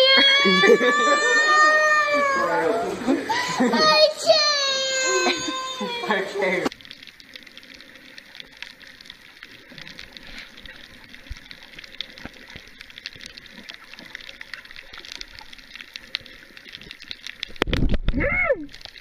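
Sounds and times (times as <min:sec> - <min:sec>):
muffled underwater hiss: 0:00.4 - 0:18.1
small crackling clicks: 0:06.4 - 0:19.0.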